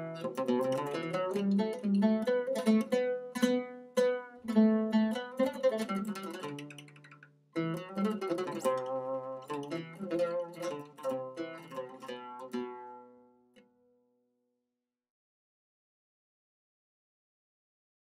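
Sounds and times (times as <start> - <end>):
oud playing: 0.0 - 14.0.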